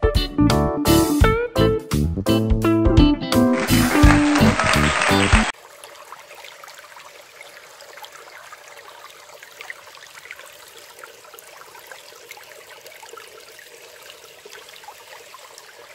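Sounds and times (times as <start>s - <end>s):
stream trickling over stones: 3.6s - 15.9s.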